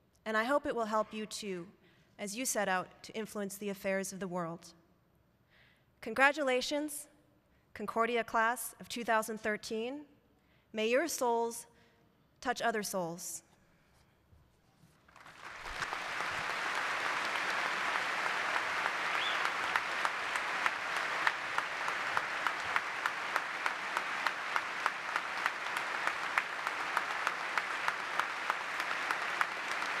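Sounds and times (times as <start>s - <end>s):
audience applauding: 15.1s - 30.0s
nearby hands clapping: 15.1s - 30.0s.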